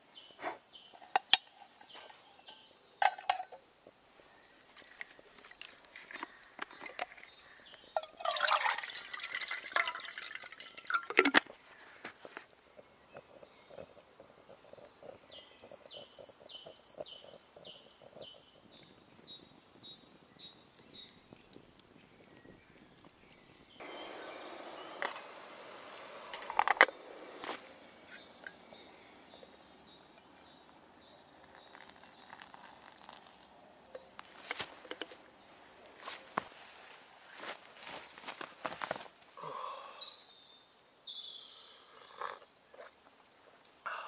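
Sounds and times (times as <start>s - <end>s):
water hissing and bubbling in kettle: 4.6s - 36.7s.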